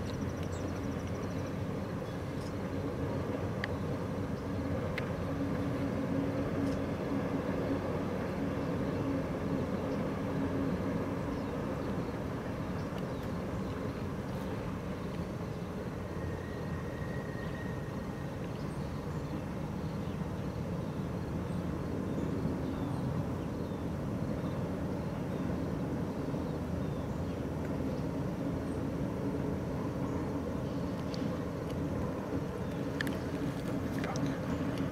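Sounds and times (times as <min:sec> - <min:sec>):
distant train rumble: 0:00.0 - 0:34.9.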